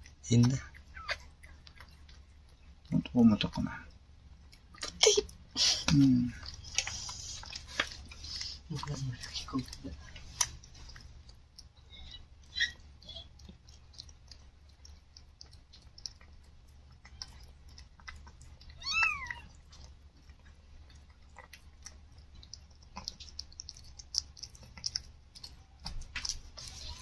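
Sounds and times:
cat licking wet clicks: 0:00.0 - 0:27.0
kitten mewing: 0:18.7 - 0:19.6.

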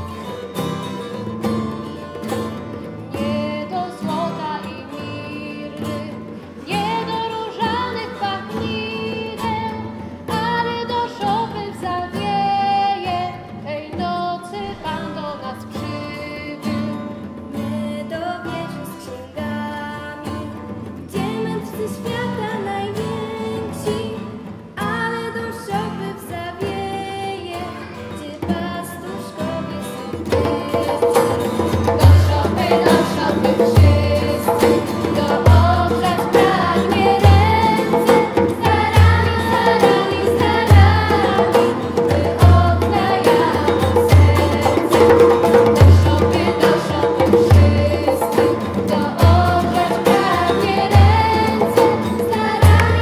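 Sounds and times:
acoustic guitars: 0:00.0 - 0:53.0
girls' choir singing: 0:30.2 - 0:53.0.

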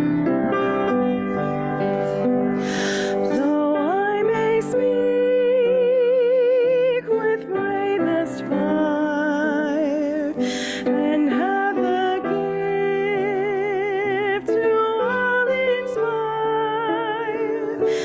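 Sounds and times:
grand piano accompaniment: 0:00.0 - 0:18.0
singer breathing: 0:02.5 - 0:03.4, 0:10.4 - 0:11.0, 0:17.8 - 0:18.0
woman singing with vibrato: 0:02.6 - 0:18.0.

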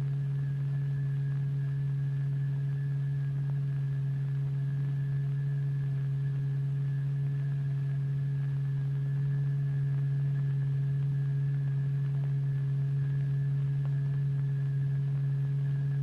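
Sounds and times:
steady low electronic tone: 0:00.0 - 0:16.0.

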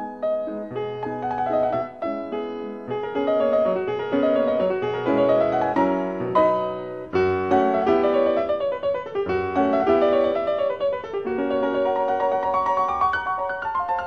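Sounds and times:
gentle classical piano piece: 0:00.0 - 0:14.0.

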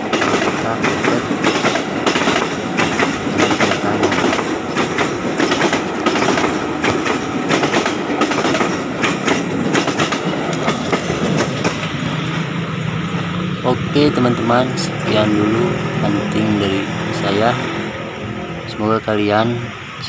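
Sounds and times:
train wheels clattering over rails: 0:00.0 - 0:13.6.

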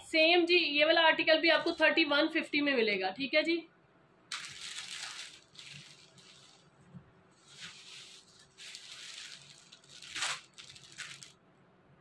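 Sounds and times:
fabric rustling: 0:04.3 - 0:11.4.

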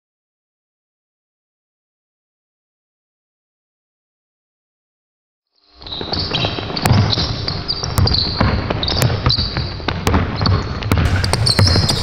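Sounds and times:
sneakers squeaking: 0:05.7 - 0:12.0
basketball bouncing on wooden floor: 0:05.9 - 0:12.0.

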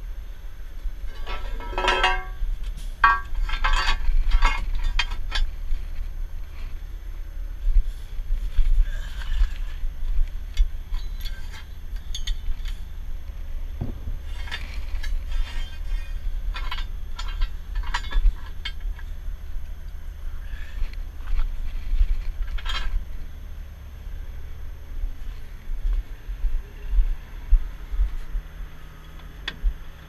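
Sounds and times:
steady low rumble: 0:00.0 - 0:30.0
metal clinks and clicks: 0:01.1 - 0:02.4, 0:10.6 - 0:12.8.

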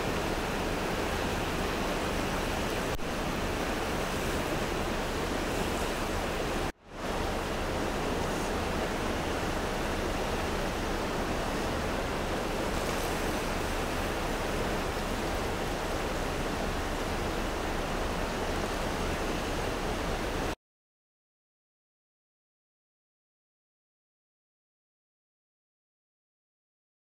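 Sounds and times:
creek water rushing: 0:00.0 - 0:20.6.

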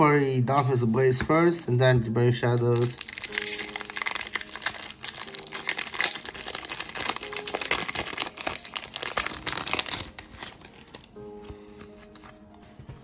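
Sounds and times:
foil wrapper crinkling and tearing: 0:02.5 - 0:11.3.

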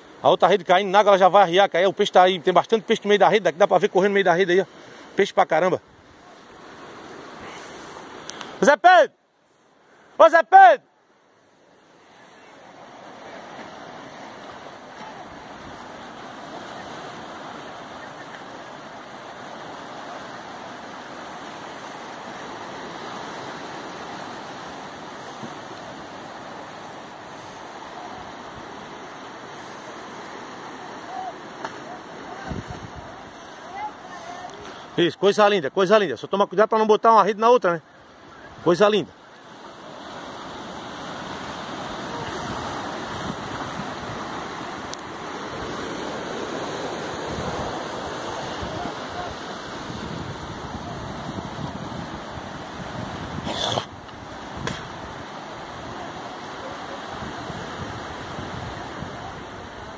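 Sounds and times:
surf breaking on beach: 0:00.0 - 0:09.1, 0:09.9 - 0:59.9
wind buffeting the microphone: 0:32.4 - 0:33.3, 0:40.5 - 0:56.1, 0:57.0 - 0:59.9.

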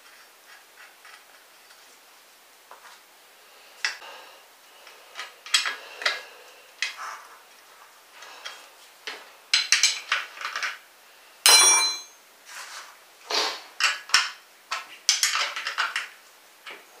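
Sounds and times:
metal tool clinking: 0:11.5 - 0:12.2.

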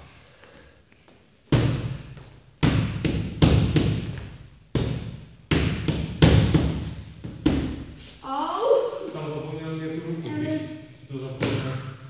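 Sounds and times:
boxing gloves hitting mitts: 0:01.5 - 0:07.9.

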